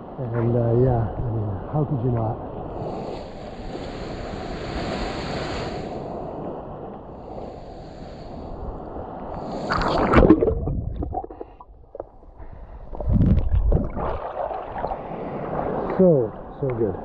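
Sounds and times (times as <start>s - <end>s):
wind on microphone: 2.2s - 16.0s
lake water lapping: 9.3s - 16.2s
splash: 9.4s - 11.6s, 13.0s - 15.9s
underwater gurgling and bubbling: 9.4s - 15.4s.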